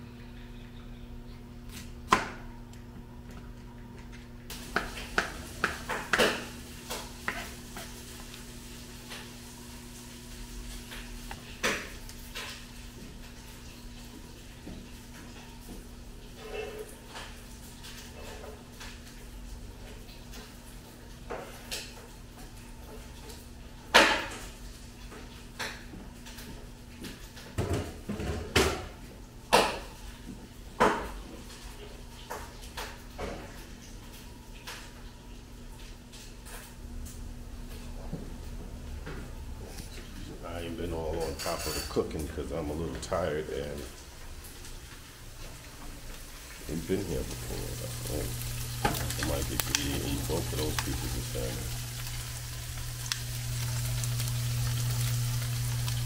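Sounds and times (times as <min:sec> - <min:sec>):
knife chopping on plastic board: 0:04.7 - 0:06.4
cookware and utensils clattering: 0:04.8 - 0:08.0, 0:16.3 - 0:18.6, 0:41.0 - 0:42.4
steady low hum: 0:45.0 - 0:56.0.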